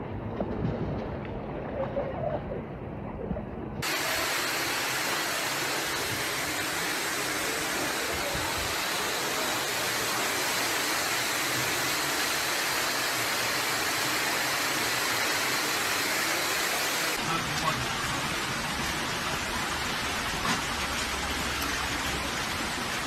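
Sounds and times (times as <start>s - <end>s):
water rushing down stairs: 3.8s - 23.0s.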